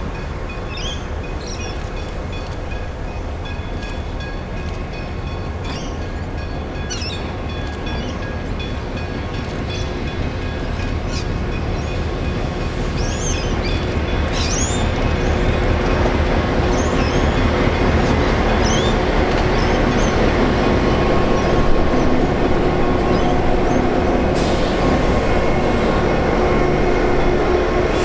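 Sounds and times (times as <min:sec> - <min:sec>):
diesel locomotive engine rumble: 0:00.0 - 0:28.0.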